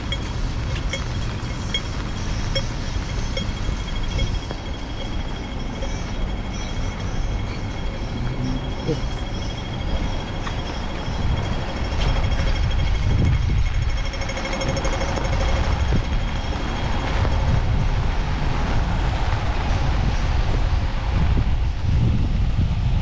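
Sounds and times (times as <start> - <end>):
fast pulsing beep: 0.0 - 17.6
high electronic tones: 0.0 - 17.9
city street traffic: 0.0 - 23.0
heavy low rumble: 0.0 - 23.0
wind buffeting microphone: 0.0 - 23.0.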